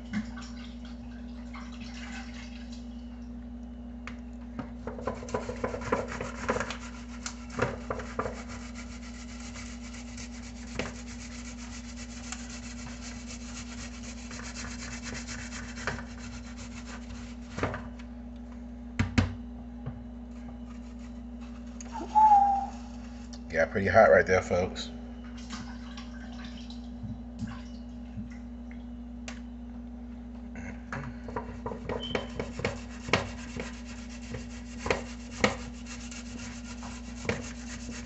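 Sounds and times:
potato rasping on a metal grater: 5.2 - 17.6, 32.4 - 38.0.

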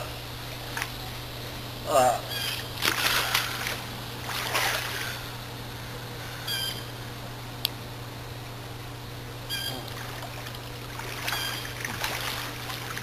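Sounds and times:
steady low hum: 0.0 - 13.0
pool water splashing: 2.5 - 5.4, 9.6 - 13.0.

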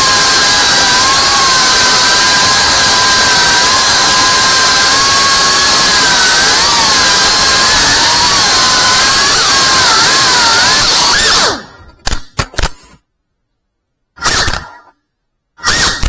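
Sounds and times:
drone motors whining: 0.0 - 12.0, 15.6 - 16.0.

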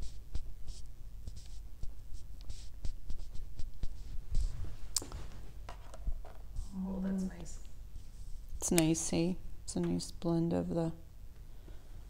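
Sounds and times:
soft rustling and scratching: 0.0 - 8.5
tissue wiped over fingers: 0.3 - 5.5.

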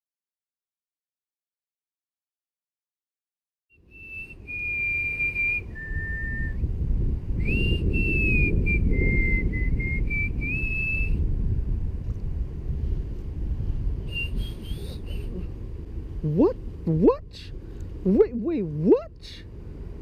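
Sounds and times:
wind rumble on microphone: 3.8 - 20.0
person whistling a tune: 3.9 - 6.6, 7.4 - 11.2, 14.1 - 15.4.

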